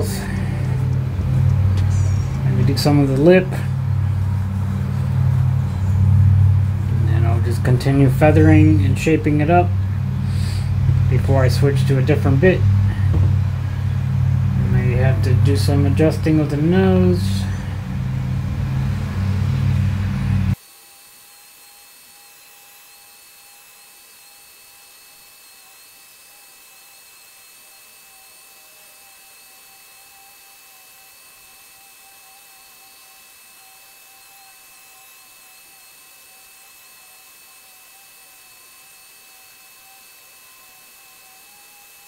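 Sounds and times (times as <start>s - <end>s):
loud deep noise: 0.0s - 20.6s
rotary tool whining carving wood: 0.0s - 42.0s.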